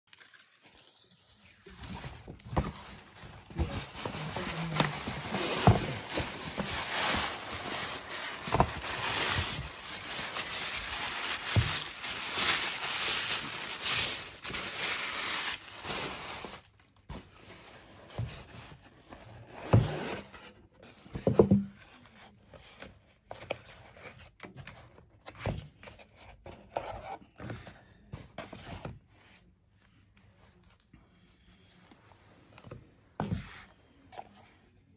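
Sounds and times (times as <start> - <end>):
paper bag rustling: 0.1 - 17.0
cardboard box handled: 1.8 - 14.7.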